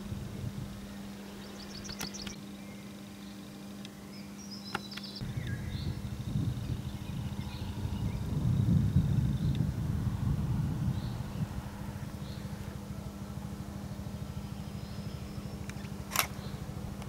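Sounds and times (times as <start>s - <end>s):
low rumbling noise: 0.0s - 2.9s, 5.2s - 17.0s
steady low hum: 0.0s - 17.0s
small birds chirping: 0.4s - 17.0s.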